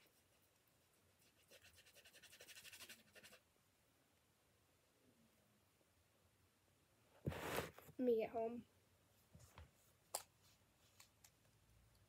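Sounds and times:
fast scratchy rubbing: 0:01.2 - 0:03.4.

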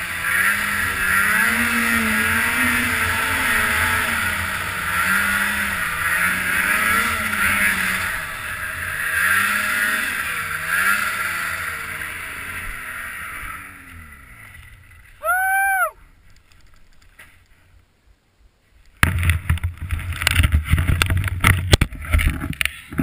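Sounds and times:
snowmobile engine revving: 0:00.0 - 0:15.9
hiss of snow and track: 0:00.0 - 0:16.4.

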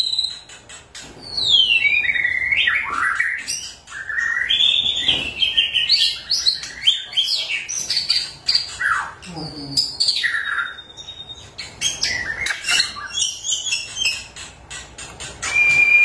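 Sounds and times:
bird singing whistled notes: 0:00.0 - 0:00.5, 0:01.3 - 0:08.2, 0:10.1 - 0:14.3, 0:15.4 - 0:16.0.

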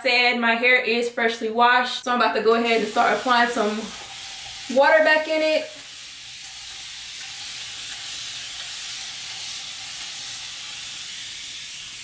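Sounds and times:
spray bottle misting hiss: 0:05.7 - 0:12.0.

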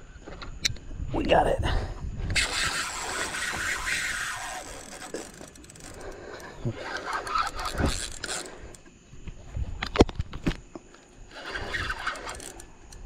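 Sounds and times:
handling noise scraping: 0:02.4 - 0:09.7.

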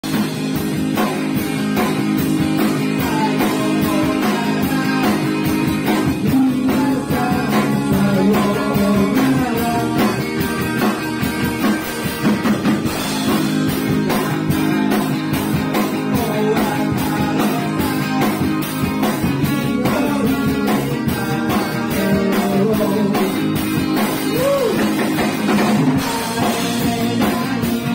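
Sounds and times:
rock band playing live: 0:00.0 - 0:27.9
steady drum beat: 0:00.0 - 0:27.9.

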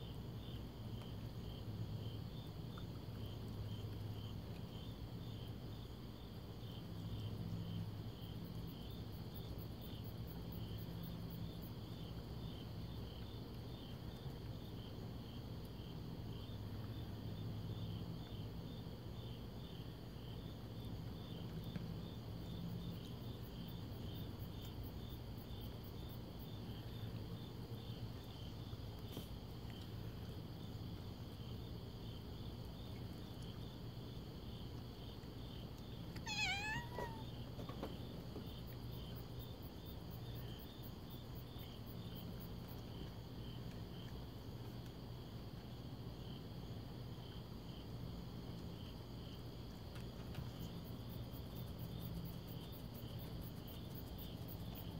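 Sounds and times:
crickets chirping: 0:00.0 - 0:54.9
cat meowing: 0:36.2 - 0:37.3.

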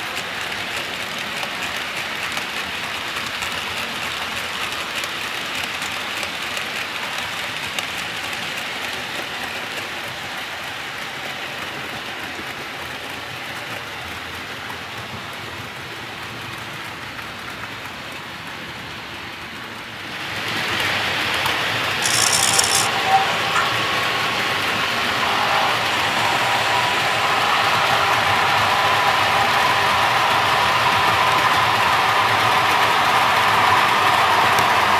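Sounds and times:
model train wheels rattling on rails: 0:00.0 - 0:19.8, 0:20.4 - 0:25.2.

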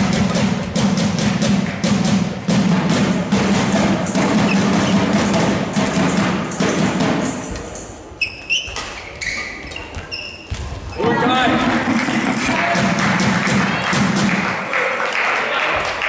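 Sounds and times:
rhythmic drumming: 0:00.0 - 0:07.9, 0:10.6 - 0:14.7
shoes squeaking on floor: 0:04.1 - 0:05.6, 0:06.7 - 0:11.2
crowd clapping: 0:11.5 - 0:16.0.

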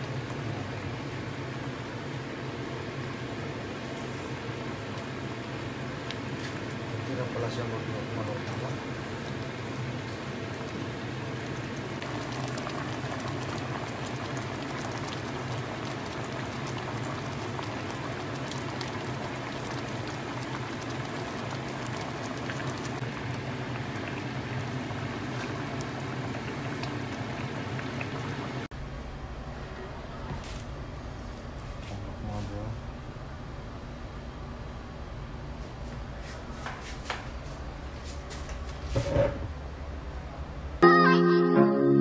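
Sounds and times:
pot bubbling and popping: 0:08.4 - 0:28.7.

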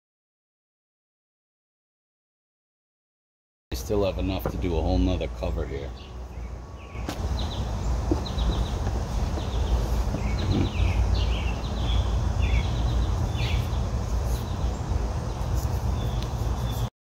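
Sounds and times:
low outdoor rumble: 0:03.7 - 0:16.9
songbird chirping: 0:03.8 - 0:16.9.

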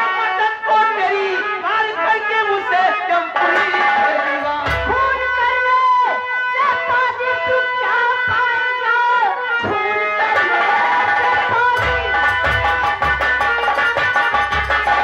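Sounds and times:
hand drum beating: 0:11.2 - 0:15.0.

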